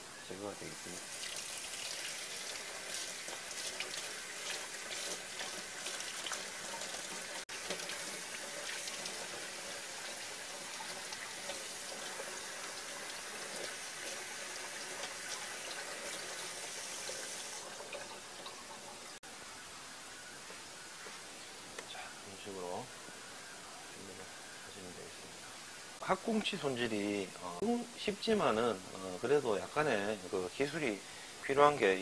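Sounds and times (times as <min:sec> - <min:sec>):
tap water running and splashing: 0:00.8 - 0:19.2.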